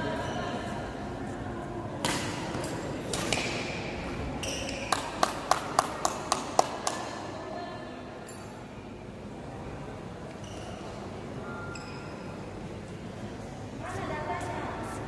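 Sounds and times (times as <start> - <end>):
racket hitting shuttlecock: 2.0 - 3.8.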